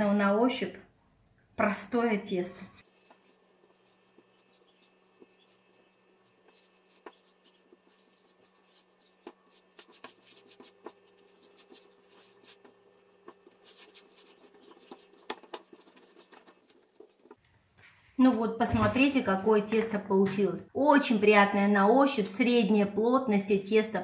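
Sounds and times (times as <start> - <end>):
hands kneading dough: 2.6 - 17.4.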